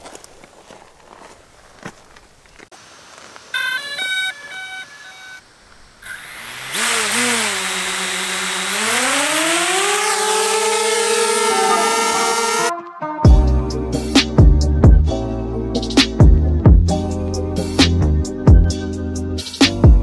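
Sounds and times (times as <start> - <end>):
drone propeller motors whining: 6.0 - 12.7.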